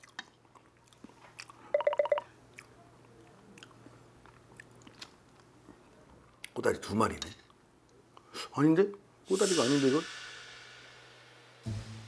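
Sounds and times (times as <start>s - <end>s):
quiet chewing: 0.0s - 6.6s.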